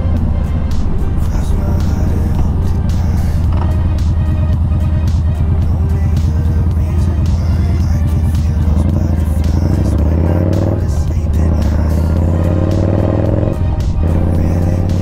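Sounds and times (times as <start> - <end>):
background music: 0.0 - 15.0
motorcycle engine accelerating: 0.0 - 15.0.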